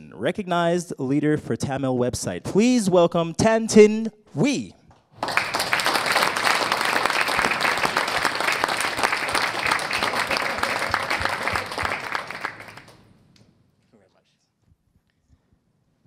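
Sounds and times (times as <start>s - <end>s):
audience applauding: 5.2s - 13.1s.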